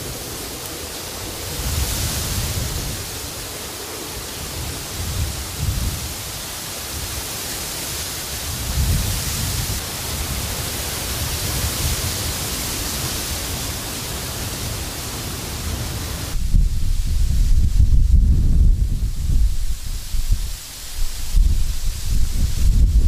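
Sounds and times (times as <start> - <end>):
grass rustling in wind: 0.0 - 23.0
wind rumble on microphone: 0.0 - 23.0.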